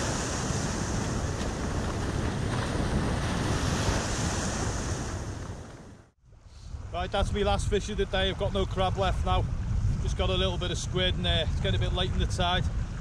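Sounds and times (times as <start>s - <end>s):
small waves breaking on sand: 0.0s - 6.9s
wind rumbling on microphone: 0.0s - 13.0s.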